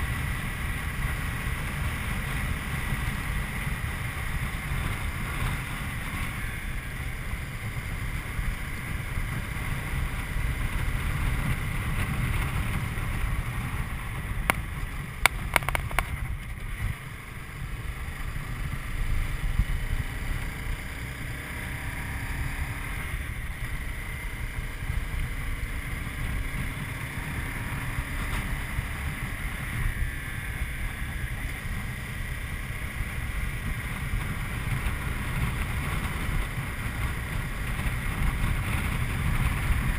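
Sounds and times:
motorcycle engine running: 0.0 - 39.9
wind rushing over microphone: 0.0 - 39.9
sharp clicks: 15.2 - 16.2.

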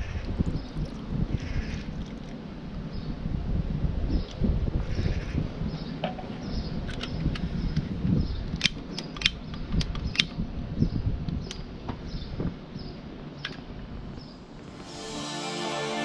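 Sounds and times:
wind rumbling on microphone: 0.0 - 14.7.

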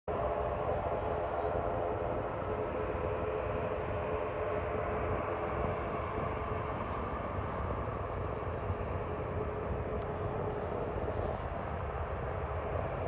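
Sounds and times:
jet engines whining: 0.2 - 13.0.

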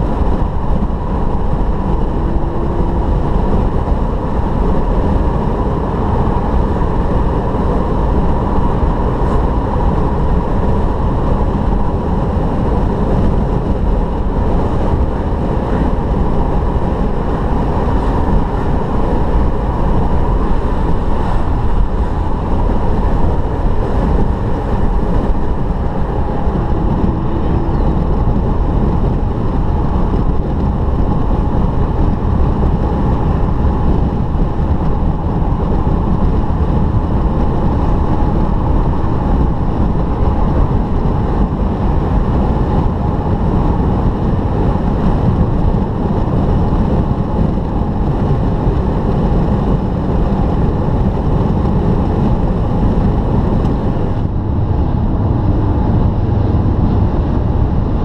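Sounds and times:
car engine running: 0.0 - 58.0
tyre roar on wet road: 0.0 - 58.0.

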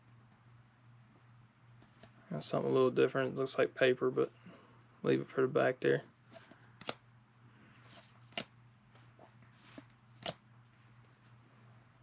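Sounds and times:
card snaps: 6.8 - 7.0
cards sliding swishes: 7.8 - 11.0.

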